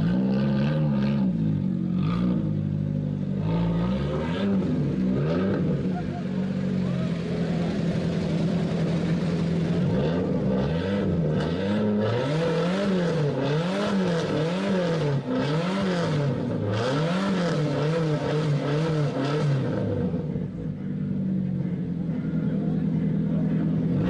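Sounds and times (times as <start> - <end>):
car engine idling: 0.0 - 24.0
car engine revving: 0.0 - 24.0.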